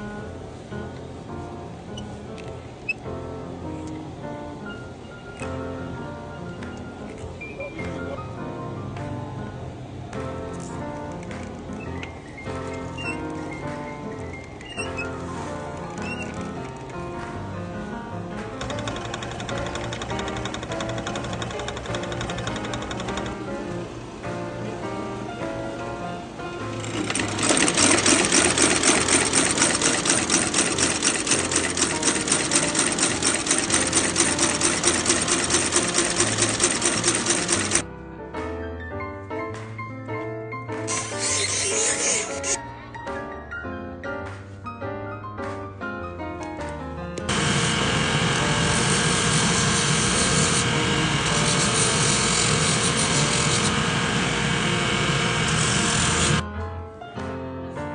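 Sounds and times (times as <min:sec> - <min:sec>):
stitching machine chattering: 0:18.6 - 0:23.4, 0:26.8 - 0:37.8, 0:40.9 - 0:42.6, 0:47.3 - 0:54.0, 0:54.9 - 0:56.4
abrasive wheels grinding: 0:26.8 - 0:37.8.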